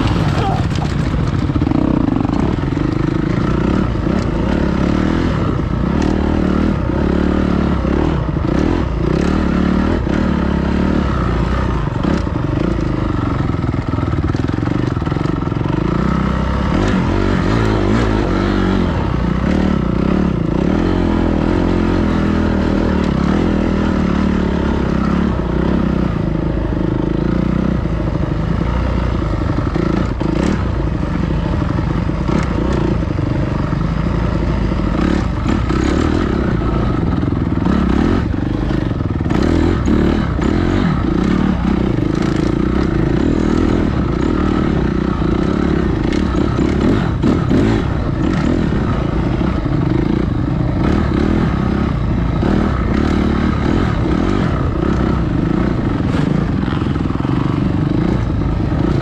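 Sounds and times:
clattering knocks from bike: 0.0s - 1.5s
dirt bike engine running: 0.0s - 59.0s.

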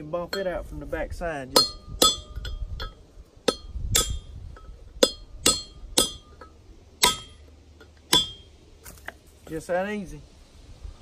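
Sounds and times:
hammer striking metal punch: 1.5s - 7.4s, 8.1s - 8.5s.

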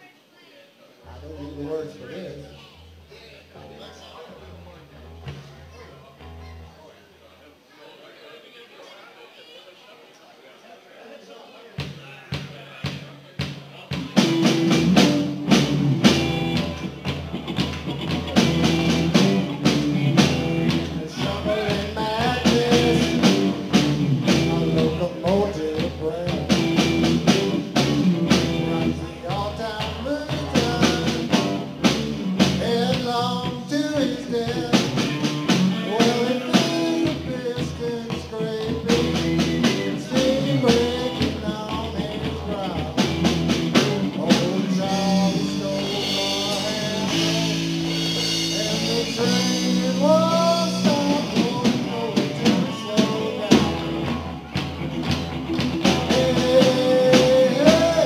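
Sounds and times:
bass guitar: 1.1s - 7.0s, 13.9s - 58.0s
drum kit: 4.9s - 6.7s, 11.8s - 58.0s
electric guitars: 13.9s - 58.0s
man singing: 18.4s - 54.4s, 55.8s - 58.0s.

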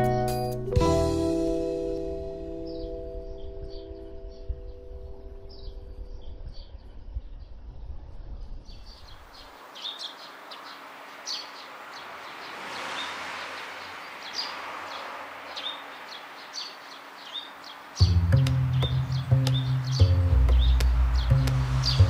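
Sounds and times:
background music: 0.0s - 6.3s, 18.0s - 22.0s
small birds chirping: 2.6s - 22.0s
rushing outdoor hiss: 8.8s - 22.0s.

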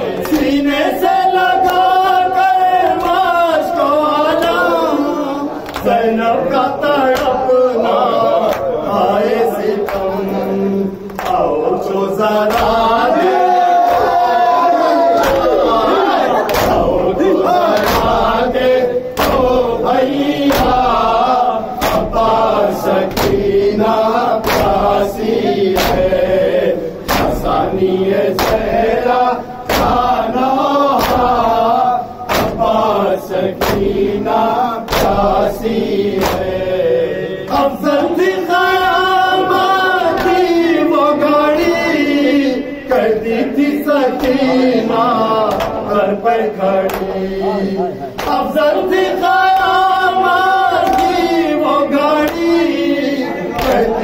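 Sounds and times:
men chanting in unison: 0.0s - 54.0s
hands slapping chests: 5.6s - 6.0s, 11.1s - 11.5s, 12.5s - 12.9s, 15.2s - 15.8s, 16.4s - 18.6s, 19.2s - 19.6s, 21.8s - 22.3s, 23.0s - 24.9s, 25.7s - 26.2s, 27.0s - 27.6s, 28.3s - 28.8s, 34.9s - 35.3s, 36.1s - 36.6s, 45.4s - 45.8s, 46.8s - 47.3s, 48.1s - 48.6s, 50.8s - 51.4s, 53.6s - 54.0s.

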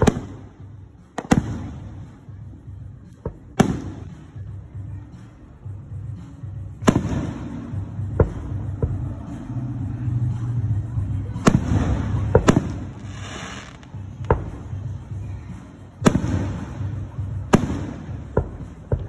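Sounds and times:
fireworks bangs: 0.0s - 2.2s, 3.3s - 4.3s, 6.8s - 9.0s, 11.4s - 14.8s, 16.0s - 19.0s
continuous low rumble: 0.0s - 19.0s.

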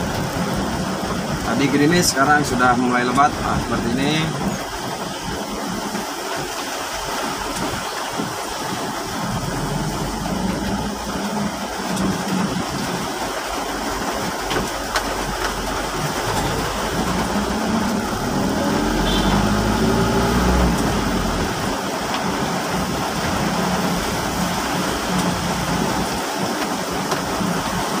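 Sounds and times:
heavy rain falling: 0.0s - 28.0s
vehicle engine running: 14.9s - 26.1s.

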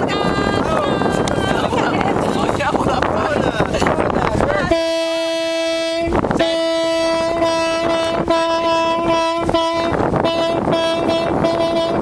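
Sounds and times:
horn long steady note: 4.5s - 12.0s.

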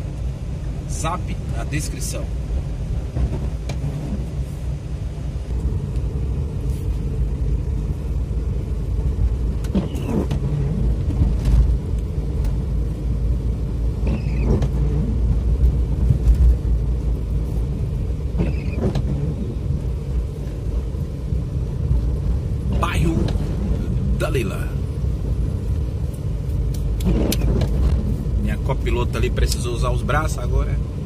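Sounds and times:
car road noise rumble: 0.0s - 31.0s
windscreen wipers sweeping: 0.0s - 31.0s.

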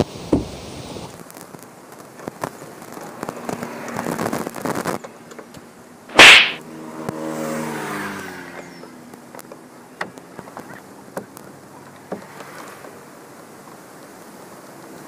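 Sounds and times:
loud burst of noise: 6.1s - 6.6s
passing vehicle engine: 6.6s - 8.9s.

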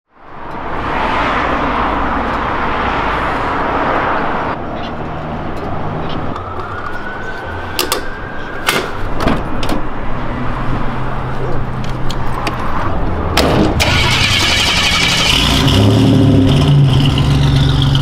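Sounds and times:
car engine rumbling: 8.2s - 18.0s.

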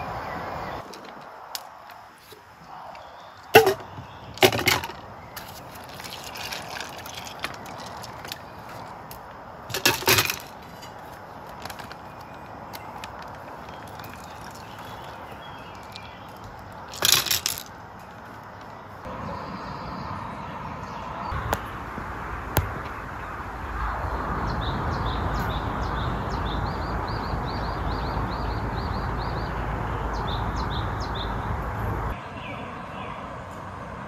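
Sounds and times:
ice rattling against mug: 3.5s - 18.2s
ice cubes clinking in metal mug: 3.6s - 8.9s, 9.7s - 12.2s, 12.8s - 16.1s, 16.9s - 17.7s.

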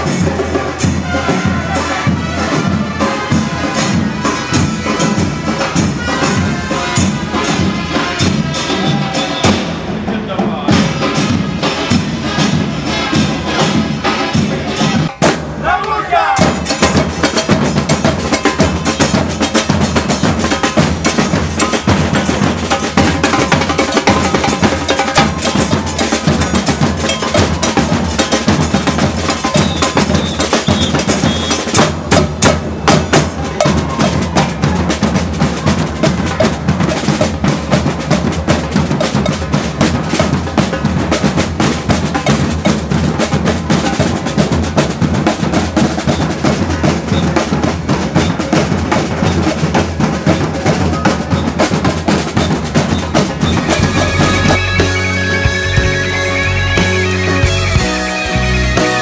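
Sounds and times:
percussion band drumming: 0.0s - 59.0s
cowbell: 16.6s - 34.7s, 38.9s - 39.7s, 41.9s - 44.4s, 52.4s - 59.0s.

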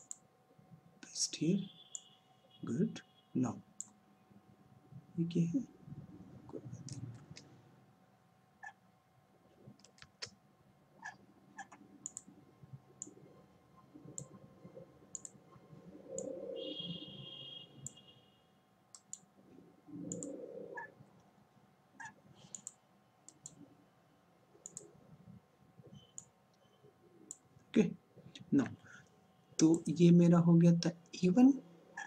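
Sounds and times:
computer mouse clicking: 0.0s - 0.2s, 6.8s - 7.5s, 9.8s - 10.3s, 11.6s - 12.3s, 15.1s - 15.4s, 18.9s - 19.3s, 20.1s - 20.9s, 22.0s - 23.6s, 24.6s - 24.9s.

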